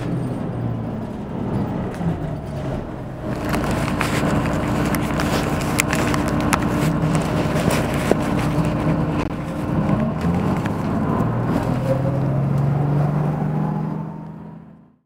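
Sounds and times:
bus engine accelerating: 0.0 - 15.0.

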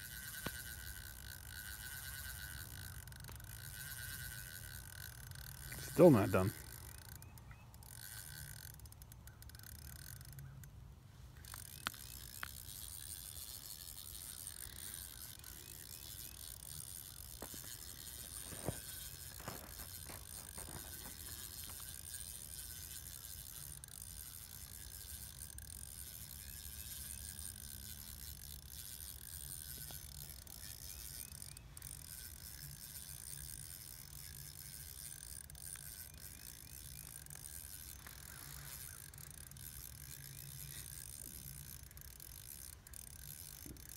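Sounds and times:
fishing reel clicks: 0.0 - 43.9.

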